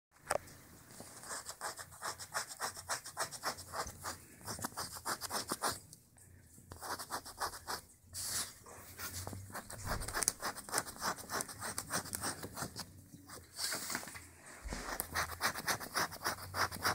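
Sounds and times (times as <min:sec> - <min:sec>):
scratching on scratch cards: 0:01.2 - 0:05.8, 0:06.7 - 0:07.8, 0:09.1 - 0:13.5, 0:14.6 - 0:16.9.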